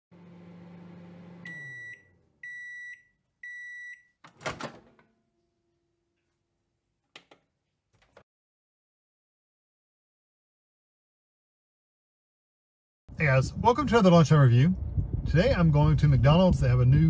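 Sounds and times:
microwave humming: 0:00.1 - 0:06.1
microwave beeps: 0:01.0 - 0:04.2
microwave door clunking open: 0:04.3 - 0:05.0.

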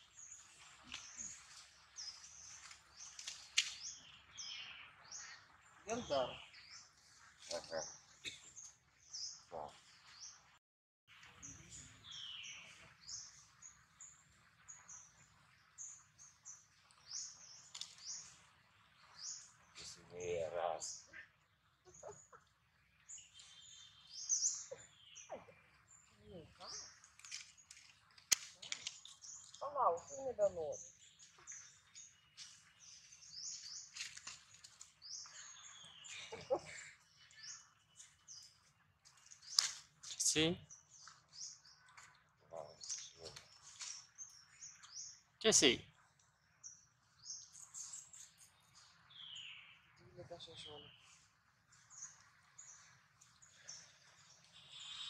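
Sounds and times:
birds chirping: 0:00.0 - 0:10.6, 0:11.2 - 0:55.0
high chirping bird calls: 0:11.4 - 0:15.2, 0:19.0 - 0:27.9, 0:51.8 - 0:55.0
lower-pitched bird call: 0:54.5 - 0:55.0.

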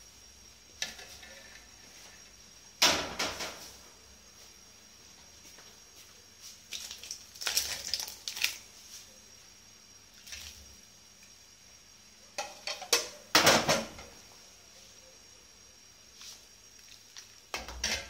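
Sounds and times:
soup splashing: 0:06.7 - 0:08.6, 0:10.2 - 0:10.7, 0:16.7 - 0:17.5.

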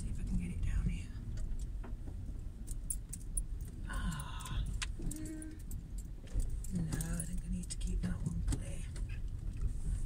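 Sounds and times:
car engine and road rumble: 0:00.0 - 0:10.0
keys clinking: 0:02.7 - 0:07.4.

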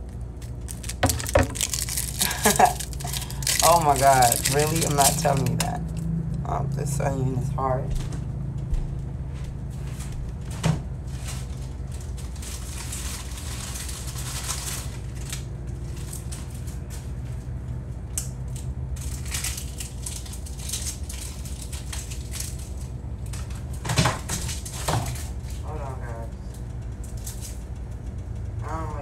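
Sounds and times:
plastic bag crinkling: 0:00.0 - 0:06.0, 0:11.0 - 0:17.3, 0:19.0 - 0:23.8
low hum: 0:00.0 - 0:23.8.

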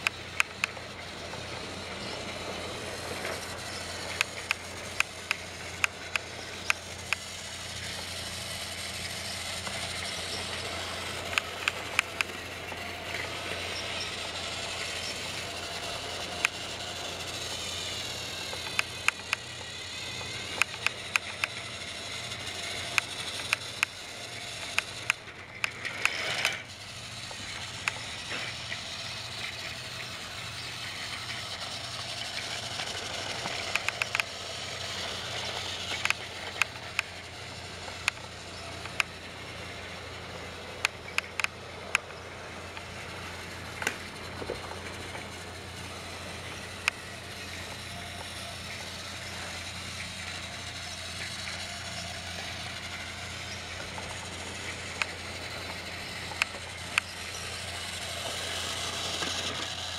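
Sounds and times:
sharp clicks: 0:00.0 - 0:00.8, 0:03.3 - 0:08.8, 0:09.4 - 0:17.0, 0:17.6 - 0:29.8, 0:31.2 - 0:34.4, 0:35.3 - 0:37.1, 0:37.9 - 0:38.2, 0:38.8 - 0:39.1, 0:40.8 - 0:42.1
toy train motor whirr: 0:00.0 - 0:59.9.

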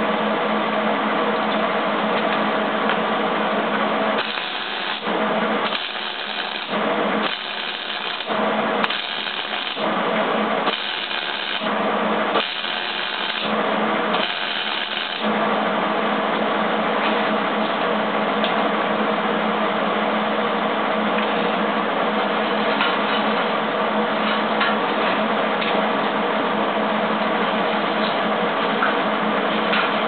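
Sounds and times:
steady low hum: 0:00.0 - 0:30.0
welding arc crackling and buzzing: 0:04.0 - 0:15.4.

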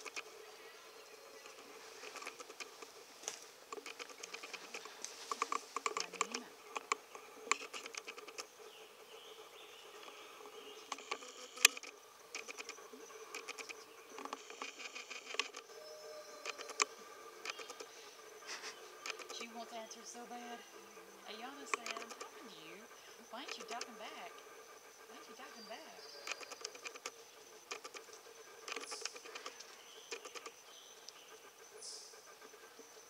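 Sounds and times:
sharp clicks: 0:00.0 - 0:00.3, 0:01.4 - 0:08.5, 0:10.8 - 0:15.7, 0:16.4 - 0:20.5, 0:21.3 - 0:24.4, 0:26.2 - 0:31.2
paws rustling dry leaves: 0:01.5 - 0:06.0.

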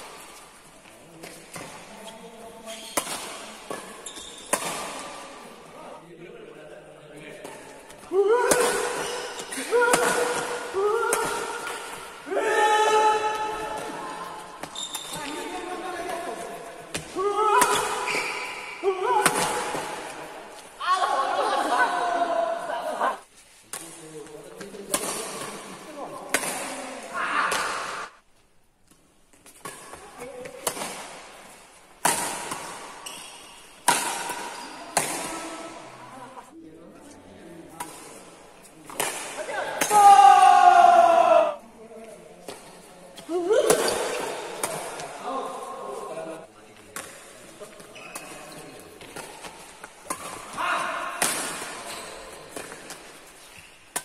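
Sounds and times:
badminton racket hitting shuttlecock: 0:02.7 - 0:05.4, 0:08.3 - 0:12.2, 0:16.9 - 0:20.1, 0:29.4 - 0:35.9, 0:42.5 - 0:45.6, 0:48.1 - 0:54.0.

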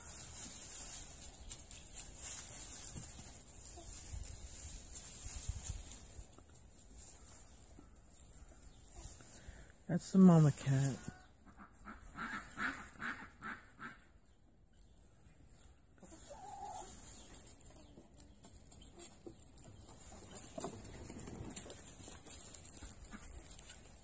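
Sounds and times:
hen clucking: 0:10.7 - 0:14.4, 0:15.9 - 0:21.8.

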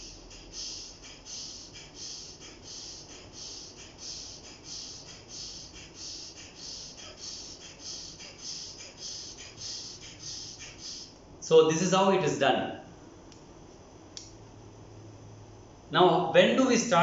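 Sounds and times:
forceful nasal exhalations: 0:00.0 - 0:11.2.

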